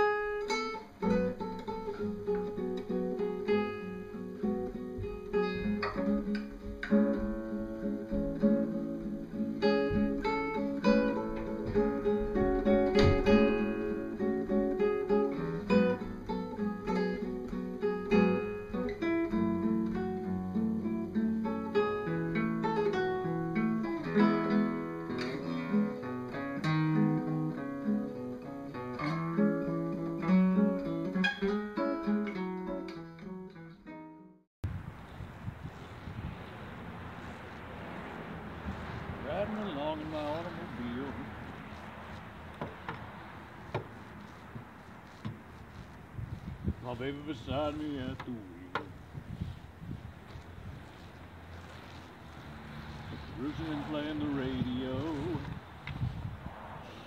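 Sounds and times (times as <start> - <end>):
classical guitar playing: 0.0 - 34.4.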